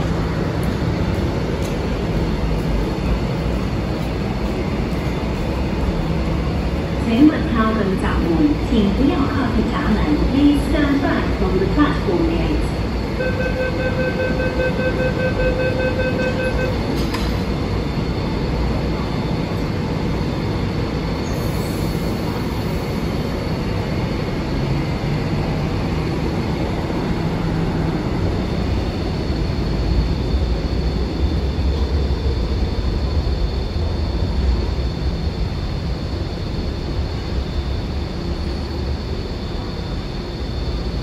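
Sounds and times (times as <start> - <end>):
train pulling away rumbling: 0.0 - 41.0
door-closing beeps: 13.2 - 17.4.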